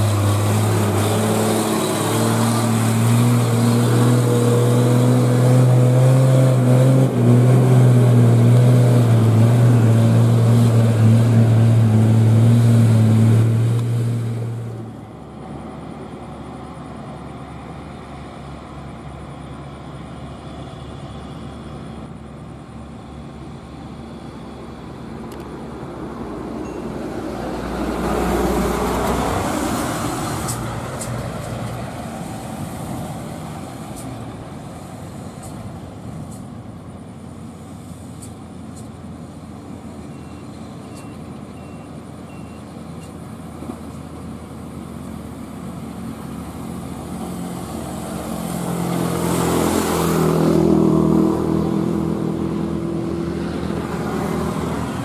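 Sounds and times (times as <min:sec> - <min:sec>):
vehicle passing by: 0:00.0 - 0:14.8, 0:25.6 - 0:35.6, 0:46.0 - 0:55.0
heavy truck engine climbing: 0:00.0 - 0:55.0.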